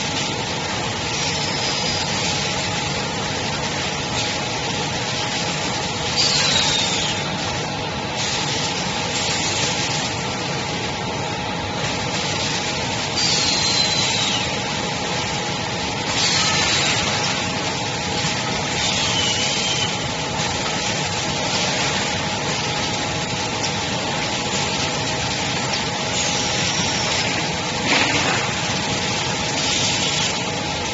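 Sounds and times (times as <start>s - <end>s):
machine hum with whining tones: 0.0s - 30.9s
pneumatic air hissing: 6.2s - 7.4s, 13.1s - 14.6s, 16.1s - 17.4s.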